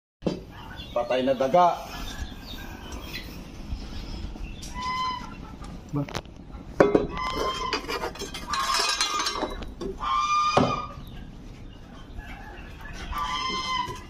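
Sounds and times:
poultry calling: 0.4 - 14.0
bamboo poles clattering: 6.8 - 11.0.

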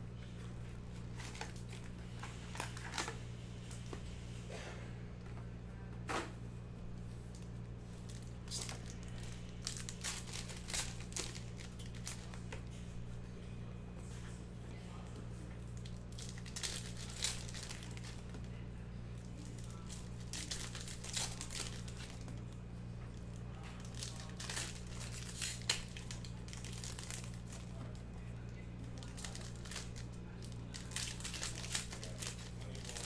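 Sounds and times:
steady low hum: 0.0 - 33.0
plastic wrappers crinkling and tearing: 0.9 - 3.9, 7.3 - 12.7, 15.7 - 33.0.

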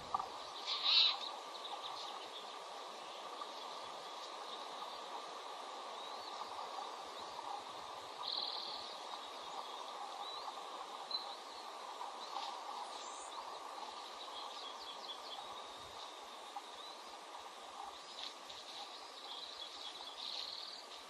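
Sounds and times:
buzzy bird trill: 0.0 - 1.3
bird chirps: 0.0 - 2.5
steady outdoor hiss: 0.0 - 21.0.

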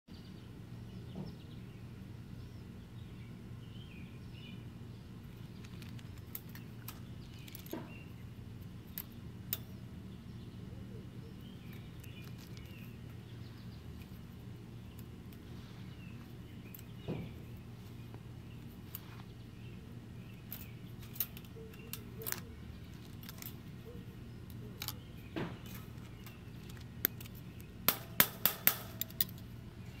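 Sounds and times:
birds chirping: 0.1 - 30.0
steady low hum: 0.1 - 30.0
wire clicking against steel mesh: 5.2 - 9.9, 11.6 - 15.5, 16.1 - 17.6, 20.3 - 30.0.

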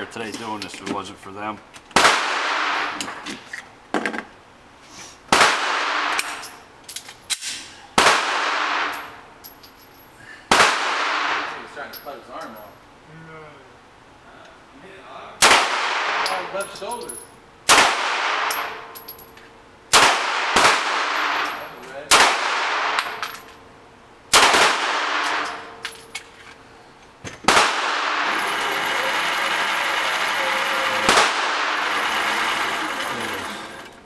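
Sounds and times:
pistol shots echoing indoors: 2.0 - 3.0, 8.0 - 9.2, 10.5 - 11.6, 15.4 - 16.4, 17.6 - 18.9, 19.9 - 23.3, 24.3 - 25.7, 27.5 - 28.2, 31.0 - 31.7
target carrier whirring: 28.0 - 34.0.

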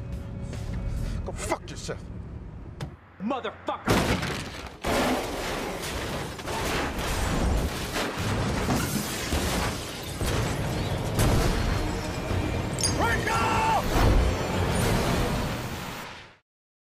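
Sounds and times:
crunching car impacts: 3.9 - 12.0
glass breaking: 3.9 - 13.1.

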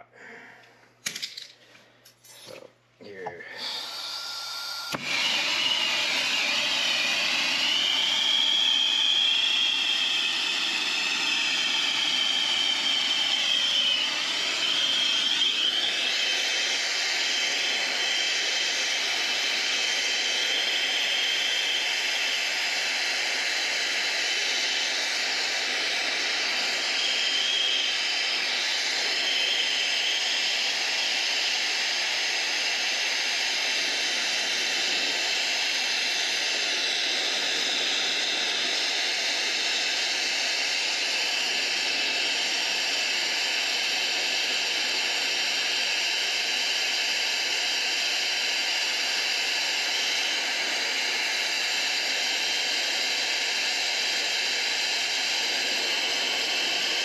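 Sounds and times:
torch flame hissing: 3.3 - 57.0
faint wavering whistle: 3.7 - 18.1, 23.8 - 32.3.

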